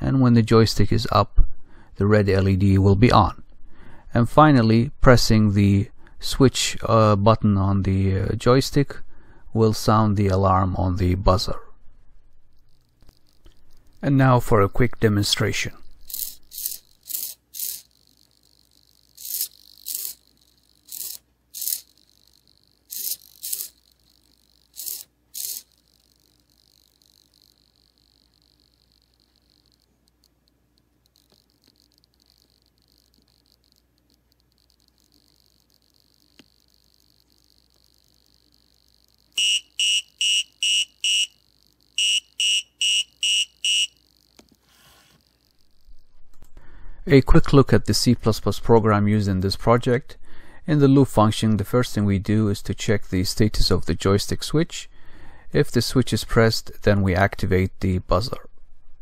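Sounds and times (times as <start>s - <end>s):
servo motor whirring: 16.1s - 30.2s
buzzer beeping: 39.4s - 44.1s.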